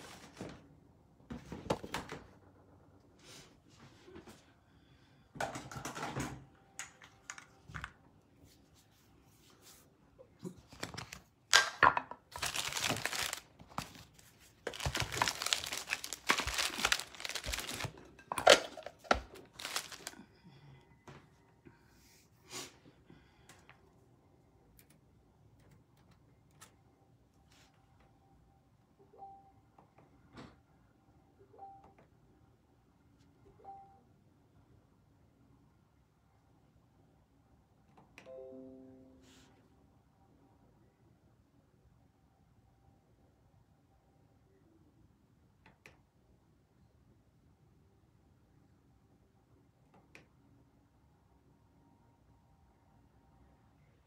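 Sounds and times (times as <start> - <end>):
plastic packaging crinkling: 12.3 - 20.2.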